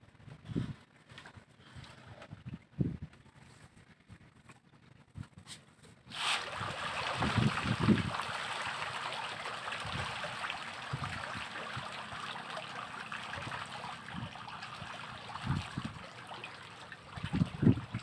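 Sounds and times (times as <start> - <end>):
fish splashing at water surface: 6.1 - 18.0.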